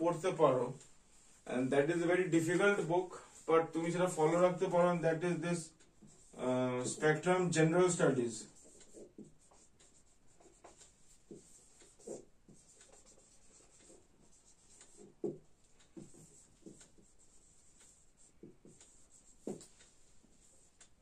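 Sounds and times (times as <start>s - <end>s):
marker squeaking on whiteboard: 6.0s - 7.3s, 8.4s - 20.8s.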